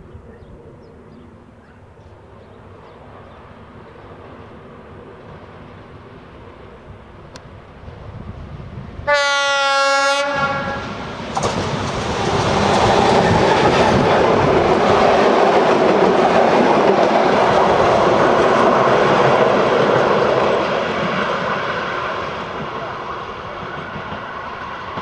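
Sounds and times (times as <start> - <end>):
train passing on rails: 0.0 - 25.0
locomotive horn: 9.1 - 11.0.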